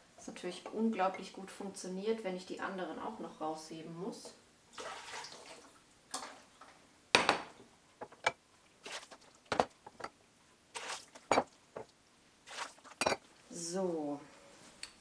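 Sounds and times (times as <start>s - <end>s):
glass jars knocking and clinking: 11.3s - 11.9s, 13.0s - 13.2s.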